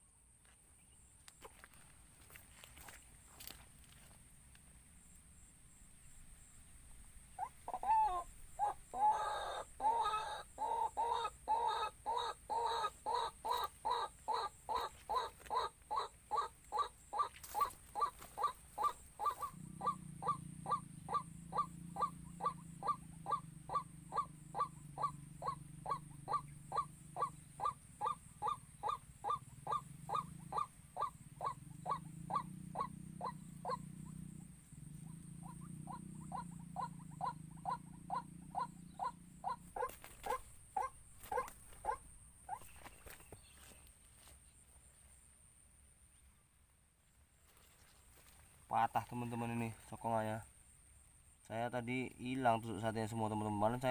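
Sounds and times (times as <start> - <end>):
bird harsh repeated call: 7.3 - 43.8.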